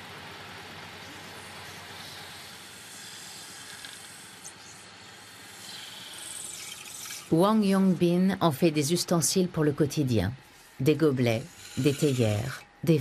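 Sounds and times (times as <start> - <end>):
lathe tool cutting bamboo: 10.6 - 12.6.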